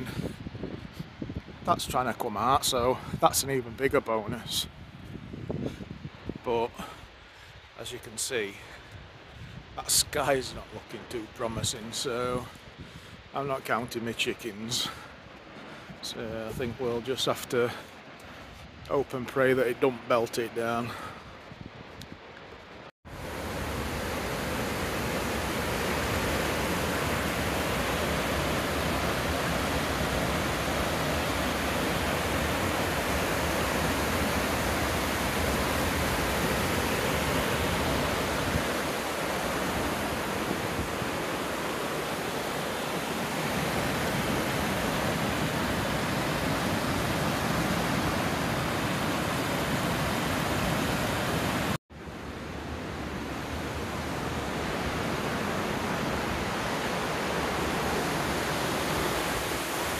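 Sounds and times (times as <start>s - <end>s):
water rushing down spillway: 23.2s - 51.8s.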